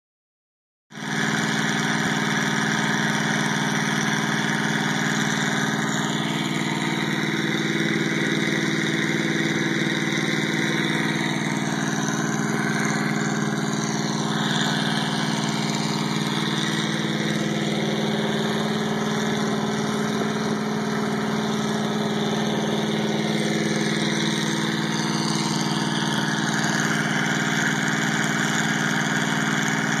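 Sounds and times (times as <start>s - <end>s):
fire engine motor running: 0.9s - 30.0s.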